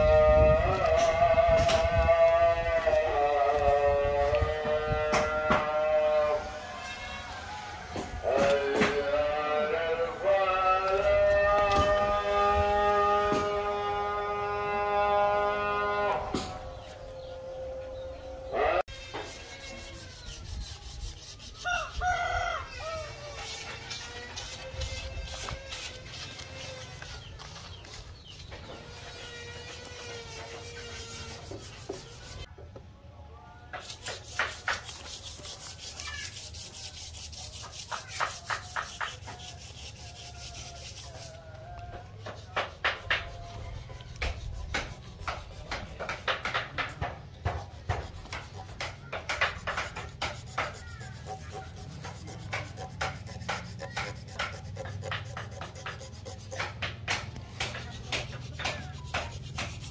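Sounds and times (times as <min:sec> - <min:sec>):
scraping on rough wood: 0:00.0 - 0:17.3, 0:18.8 - 0:32.5, 0:33.7 - 0:59.9.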